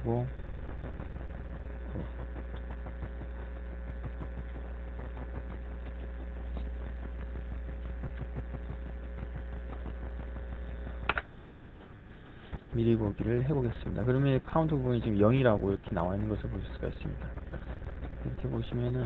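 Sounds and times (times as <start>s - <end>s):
low electrical hum: 0.0s - 19.0s
sharp click: 11.0s - 11.3s.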